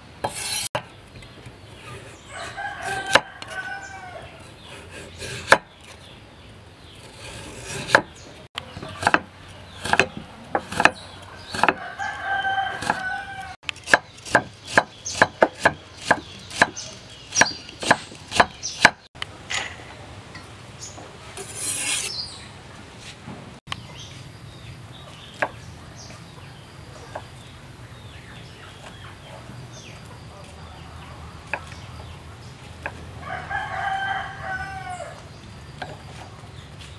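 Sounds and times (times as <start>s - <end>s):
rooster crowing: 2.3s - 4.5s, 11.6s - 13.6s, 33.2s - 35.2s
cleaver chopping on wooden block: 5.2s - 5.7s, 8.8s - 11.8s, 13.8s - 19.1s.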